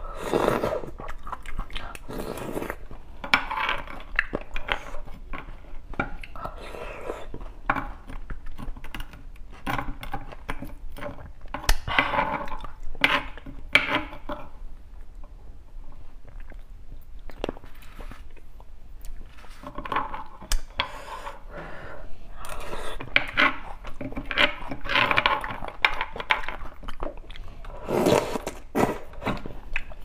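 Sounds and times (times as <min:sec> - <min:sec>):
wet chewing and sucking: 0:00.0 - 0:03.1
metal spoon scraping bone: 0:22.6 - 0:26.3.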